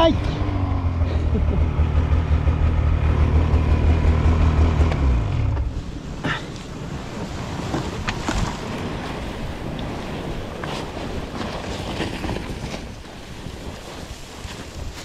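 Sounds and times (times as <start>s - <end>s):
snowmobile engine: 0.0s - 8.0s
wind on microphone: 4.8s - 15.0s.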